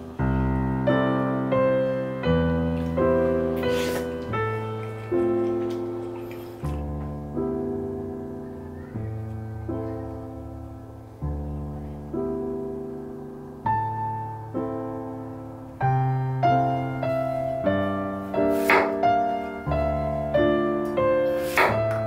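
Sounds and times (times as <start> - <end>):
gentle piano music: 0.0 - 22.0
knife chopping on cutting board: 21.4 - 21.8.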